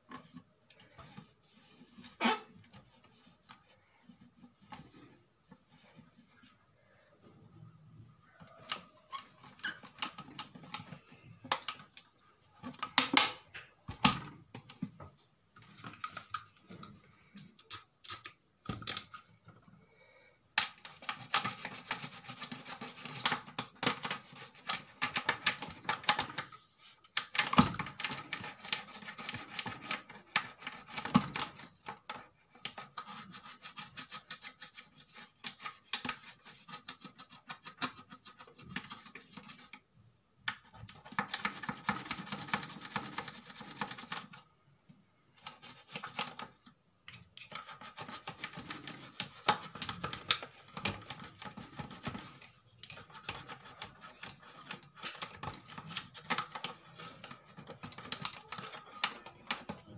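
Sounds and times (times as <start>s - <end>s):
brush scrubbing plastic: 0.0s - 6.6s, 20.7s - 39.8s, 40.5s - 44.5s, 45.4s - 46.7s, 47.4s - 59.9s.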